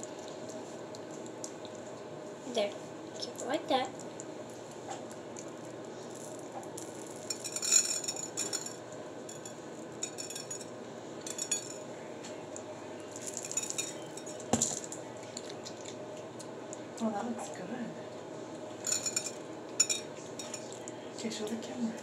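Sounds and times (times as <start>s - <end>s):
sprinkles rattling in a jar: 6.1s - 10.6s, 11.3s - 11.8s, 13.2s - 14.9s, 18.8s - 20.7s.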